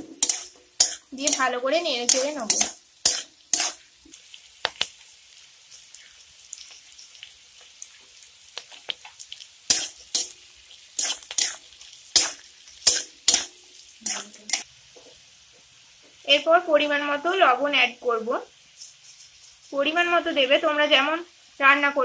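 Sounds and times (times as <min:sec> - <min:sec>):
metal spatula scraping a pan: 0:00.0 - 0:04.2, 0:09.7 - 0:14.7
faint sizzle: 0:00.0 - 0:22.0.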